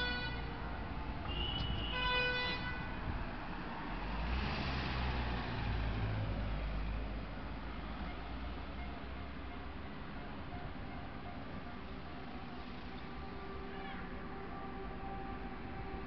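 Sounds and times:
car horn honking: 0:00.0 - 0:00.5, 0:01.3 - 0:02.9
van driving past: 0:03.3 - 0:07.4.

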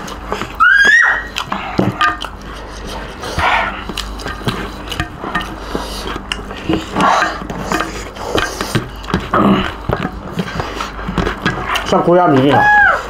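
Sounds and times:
wet chewing and lip smacking: 0:00.0 - 0:12.0
fingers scraping rice on steel plates: 0:01.3 - 0:12.8.

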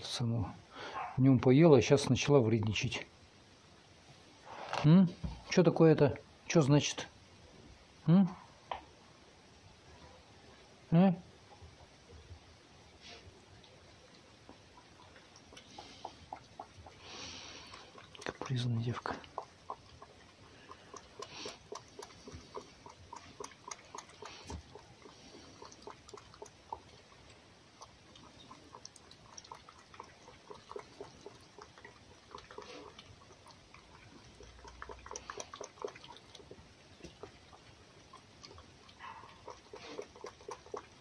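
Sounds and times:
fox lapping from a bowl: 0:12.9 - 0:41.0.

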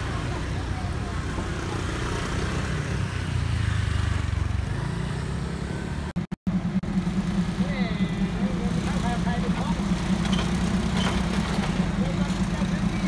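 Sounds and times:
diesel engine rumbling: 0:00.0 - 0:13.0.

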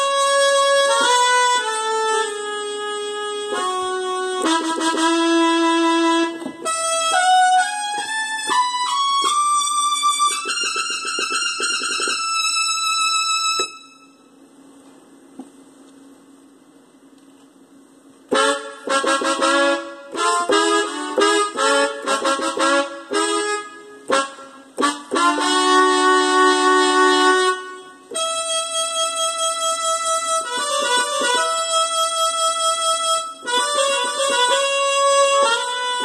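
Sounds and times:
synthesizer horn-like melody: 0:00.0 - 0:09.3, 0:18.3 - 0:36.0.

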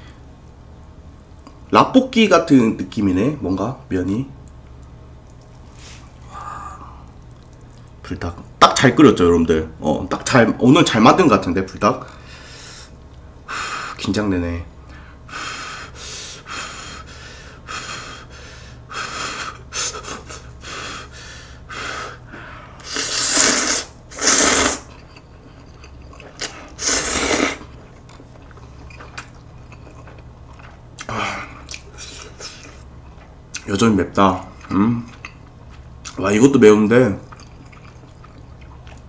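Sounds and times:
person slurping noodles: 0:22.8 - 0:24.9, 0:26.7 - 0:27.7.

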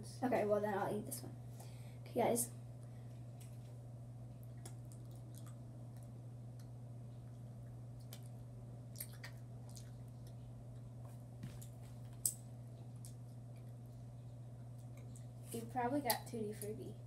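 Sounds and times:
steady low hum: 0:00.0 - 0:17.0
person chewing wetly: 0:04.4 - 0:15.4.

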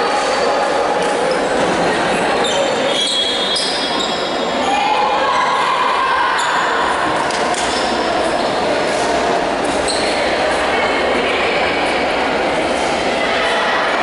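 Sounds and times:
indistinct voices: 0:00.0 - 0:14.0
reverberant sports hall din: 0:00.0 - 0:14.0
shoe squeaks on court floor: 0:02.4 - 0:04.4, 0:09.8 - 0:10.3.

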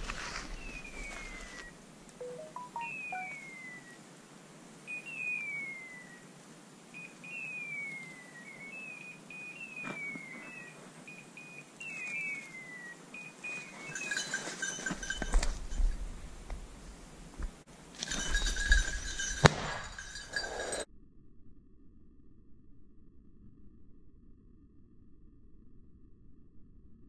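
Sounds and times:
short flat beeps: 0:02.2 - 0:03.5
falling whistled call: 0:07.0 - 0:14.0.

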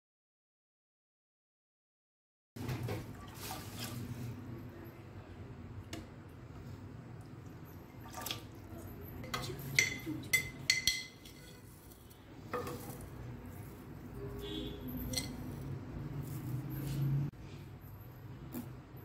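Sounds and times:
metal spoon clinking on glass: 0:08.7 - 0:11.8, 0:14.2 - 0:16.8.

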